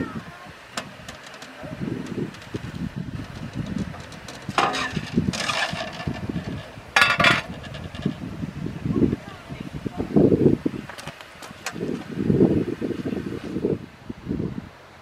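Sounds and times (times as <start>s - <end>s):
metallic knocks and clatter: 0.8s - 8.3s.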